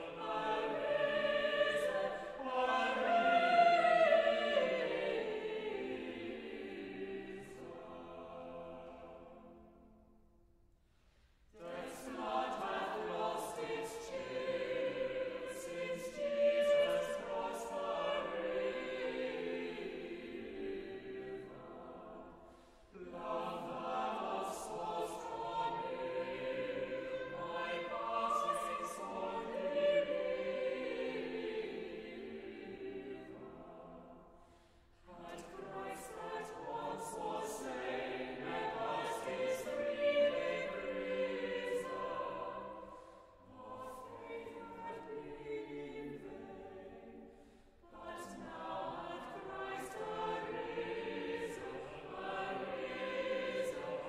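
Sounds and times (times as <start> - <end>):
choir singing: 0.0 - 10.3, 11.4 - 54.0.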